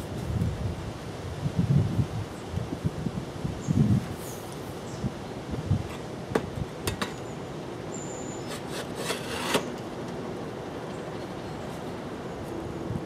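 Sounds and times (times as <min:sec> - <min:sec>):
wood scraping on steel: 0:08.4 - 0:09.9.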